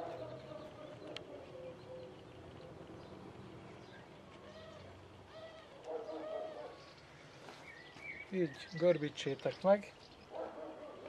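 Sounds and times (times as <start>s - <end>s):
birds calling faintly: 0.0s - 11.0s.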